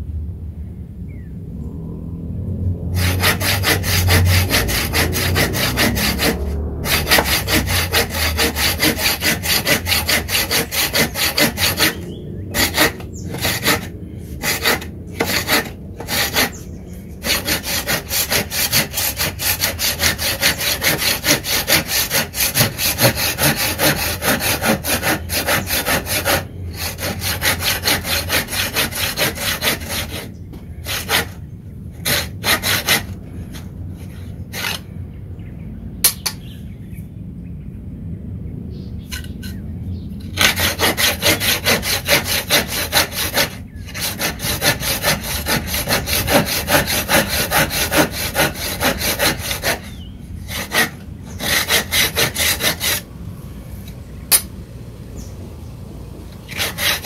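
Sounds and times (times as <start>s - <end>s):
hand saw cutting wood: 2.9s - 16.6s, 17.2s - 31.4s, 32.0s - 34.9s, 40.3s - 53.1s, 56.4s - 57.0s.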